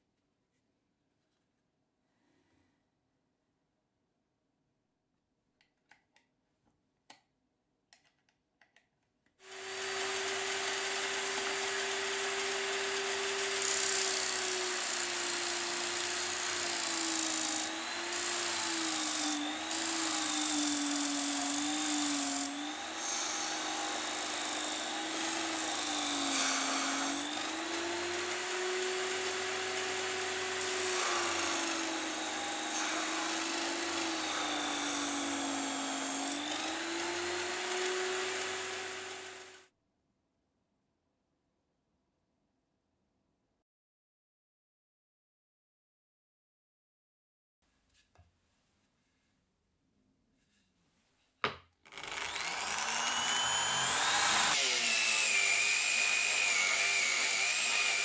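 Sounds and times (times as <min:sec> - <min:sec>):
drill motor whining: 0:09.4 - 0:39.6, 0:51.9 - 0:58.0.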